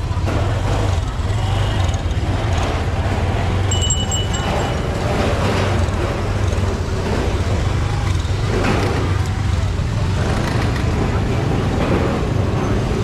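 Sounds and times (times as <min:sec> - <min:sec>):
chatter of shoppers and vendors: 0:00.0 - 0:13.0
motorbike and scooter engines: 0:00.0 - 0:13.0
high beep: 0:03.7 - 0:05.2.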